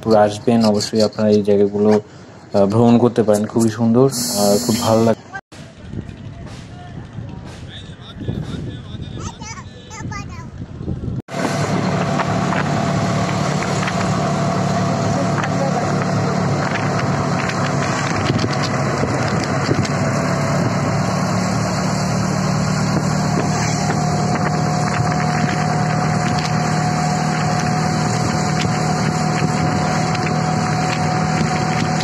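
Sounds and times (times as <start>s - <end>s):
road and wind noise: 0.0s - 32.0s
auto-rickshaw motor hum: 11.3s - 32.0s.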